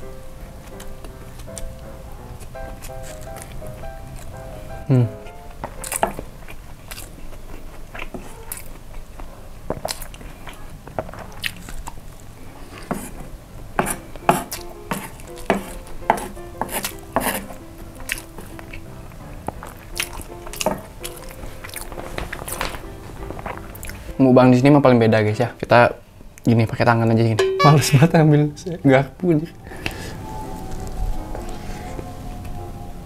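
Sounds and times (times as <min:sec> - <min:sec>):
person chewing: 0:02.8 - 0:04.4, 0:05.7 - 0:12.0, 0:14.5 - 0:18.8, 0:19.6 - 0:22.5
wooden spoon scraping board: 0:13.8 - 0:17.6.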